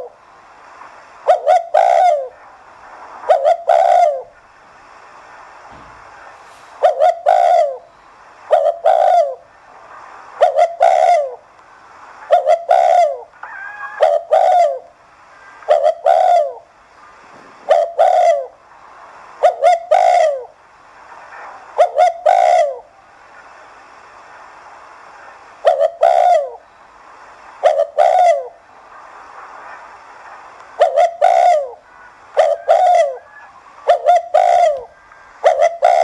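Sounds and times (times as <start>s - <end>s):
dove cooing: 1.3s - 2.4s, 3.3s - 4.3s, 6.8s - 7.9s, 8.5s - 9.5s, 10.4s - 11.4s, 12.3s - 14.9s, 15.7s - 16.7s, 17.5s - 18.6s, 19.4s - 20.6s, 21.8s - 22.9s, 25.6s - 26.6s, 27.6s - 28.6s, 30.8s - 36.0s.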